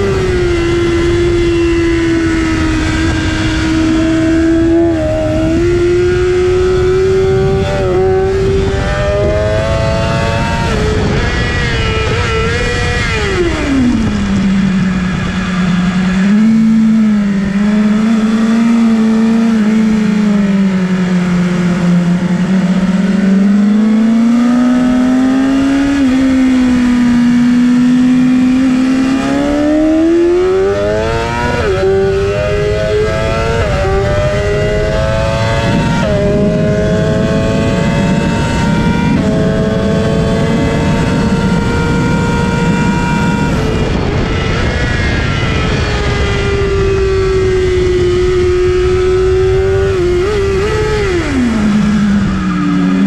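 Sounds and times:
motorcycle engine revving: 0.0 - 53.0
wind noise: 0.0 - 53.0.

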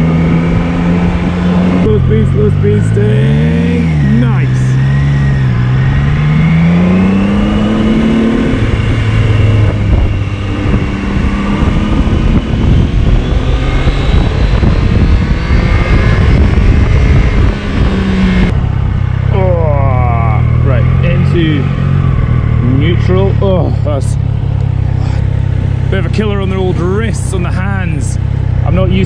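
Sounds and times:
motorcycle engine accelerating: 0.0 - 29.0
wind rush over microphone: 4.3 - 19.0.

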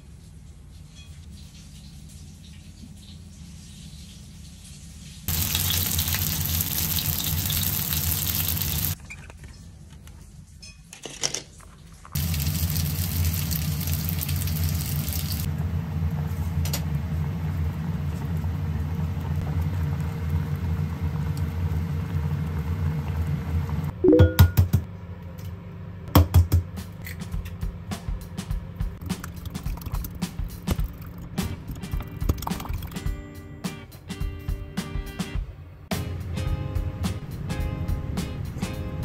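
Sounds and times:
water bubbling in a pot: 29.0 - 33.0.

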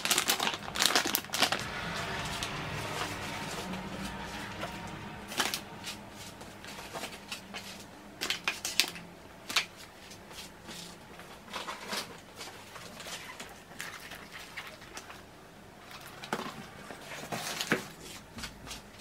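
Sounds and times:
plastic wrap crinkling: 0.0 - 1.6.

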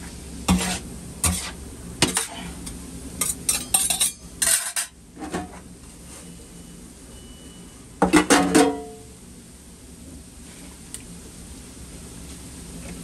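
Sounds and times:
metal utensils and dishes clattering: 0.5 - 2.5, 3.2 - 5.5.

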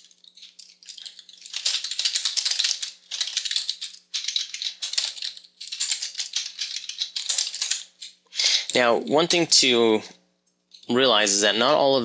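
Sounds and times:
typing on computer keyboard: 0.0 - 8.8.

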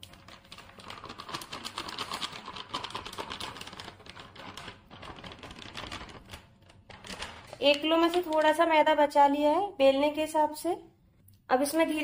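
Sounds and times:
plastic packet crinkling: 0.0 - 9.0.

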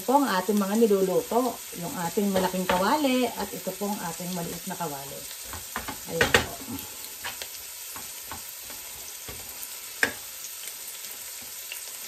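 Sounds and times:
meat sizzling in a pan: 0.0 - 12.0
wooden spatula scraping a pan: 4.4 - 10.3.

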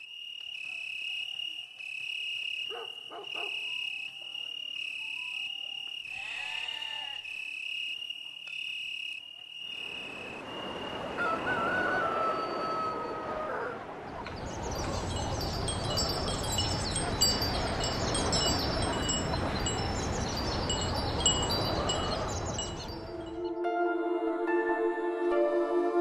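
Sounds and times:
wind chimes tinkling: 14.3 - 23.5
music with long held notes: 22.9 - 26.0.

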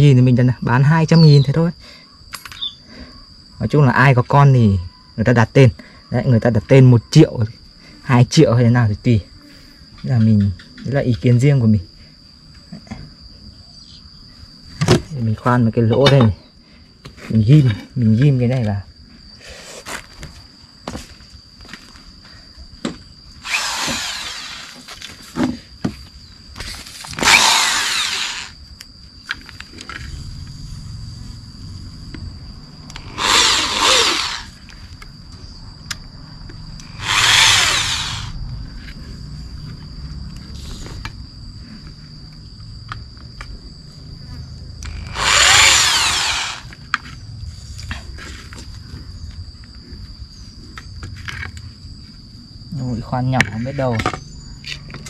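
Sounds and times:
electric drill boring wood: 23.4 - 25.0, 27.1 - 28.6, 32.9 - 34.6, 36.8 - 38.4, 44.8 - 46.8.

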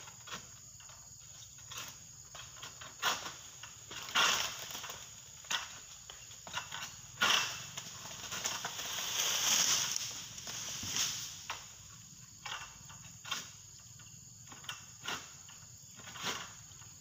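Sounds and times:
palm fronds rustling: 1.7 - 13.6.

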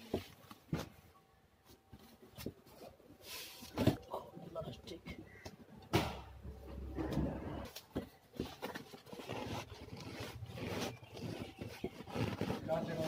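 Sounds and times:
sharp knock: 5.9 - 6.3
seat cover rustling: 8.3 - 13.0.

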